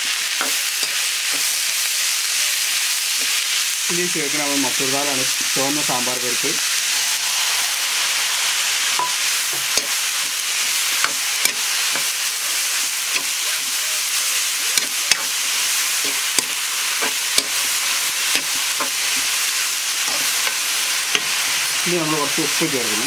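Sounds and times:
food sizzling in oil: 0.0s - 23.0s
metal spatula scraping pan: 6.7s - 13.6s.

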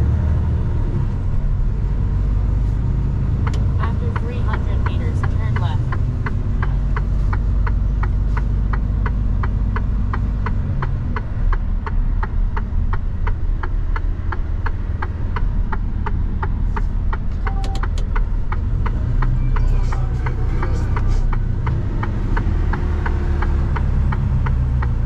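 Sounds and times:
truck engine drone: 0.0s - 25.0s
turn signal ticking: 0.3s - 25.0s
short beep: 17.5s - 17.9s.

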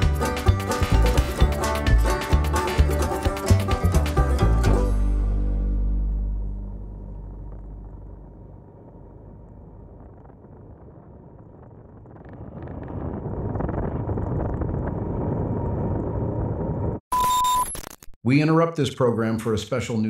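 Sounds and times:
background music: 0.0s - 7.6s
wind noise: 7.5s - 17.0s.

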